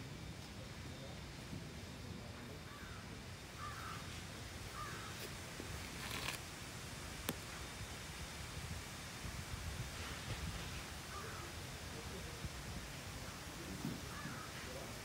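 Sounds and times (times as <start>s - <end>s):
crow cawing: 2.7s - 3.0s, 3.6s - 4.1s, 4.7s - 5.2s, 11.1s - 11.5s, 14.1s - 14.5s.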